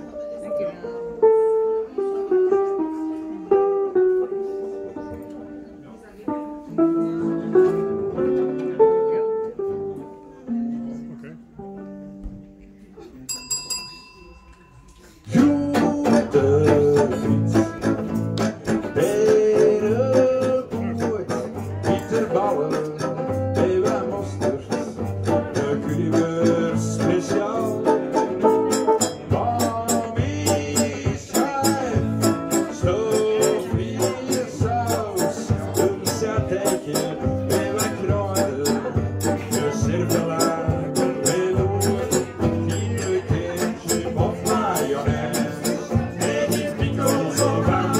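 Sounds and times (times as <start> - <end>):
live band playing guitars: 0.0 - 12.7, 15.1 - 47.9.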